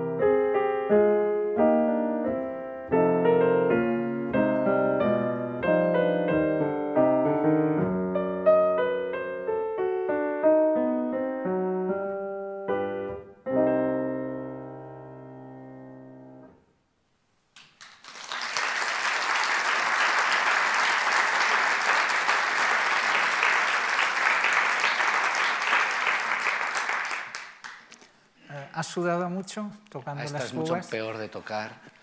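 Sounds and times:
grand piano playing: 0.0s - 16.6s
audience applauding: 17.6s - 28.0s.

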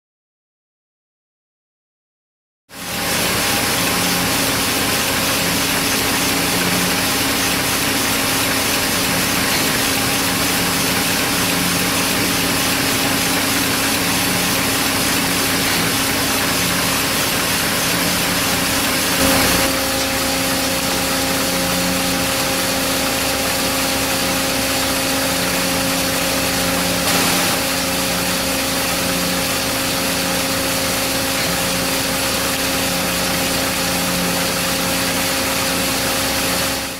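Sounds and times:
machinery hum and hiss: 15.0s - 21.0s, 27.1s - 27.9s.

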